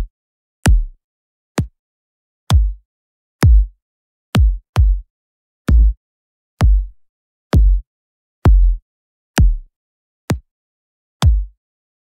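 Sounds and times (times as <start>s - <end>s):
electronic kick drum hits: 6.6s - 6.9s, 7.6s - 7.8s.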